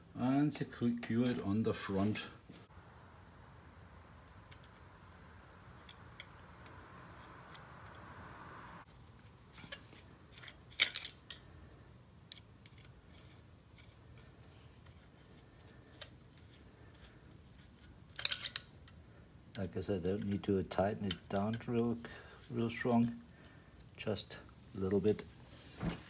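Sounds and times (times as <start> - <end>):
screwdriver clicking on metal plate: 18.1 - 18.9.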